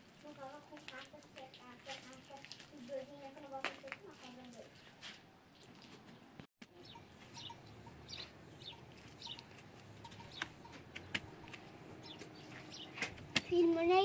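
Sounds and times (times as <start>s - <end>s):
small birds chirping: 5.5s - 14.0s
hand shovel knocking earth: 9.2s - 13.5s.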